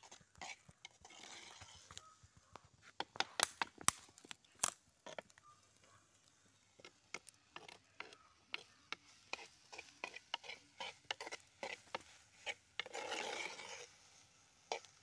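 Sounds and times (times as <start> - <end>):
spoon scraping clay pot: 0.0 - 2.1, 6.8 - 15.0.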